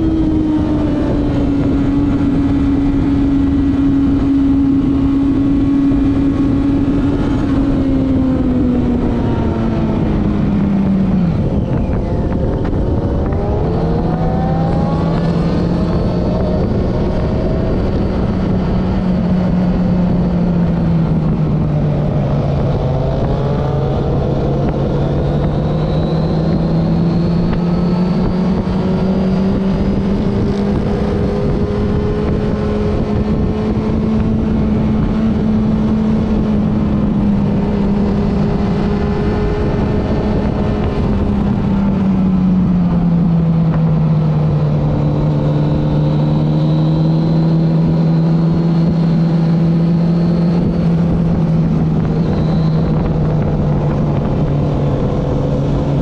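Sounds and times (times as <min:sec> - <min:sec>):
wind and road noise: 0:00.0 - 0:56.0.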